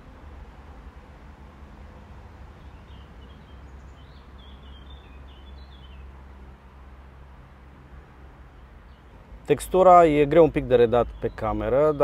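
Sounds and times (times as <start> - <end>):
bird chirping: 2.5 - 6.8, 8.5 - 9.2, 10.2 - 12.0.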